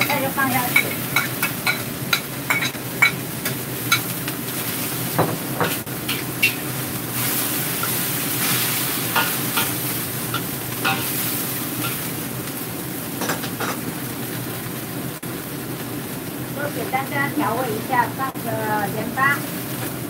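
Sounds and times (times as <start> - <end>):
vegetables sizzling in a wok: 0.0 - 20.0
spatula scraping a wok: 5.6 - 12.1.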